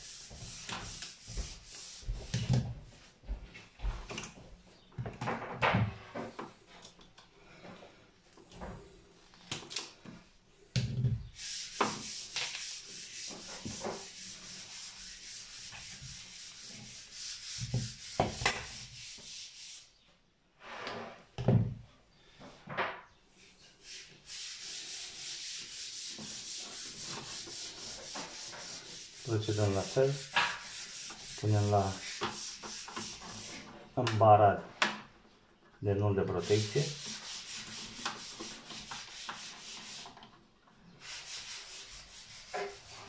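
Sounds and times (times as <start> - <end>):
rapid scraping strokes: 23.8 - 33.7, 36.3 - 40.2, 41.0 - 43.0.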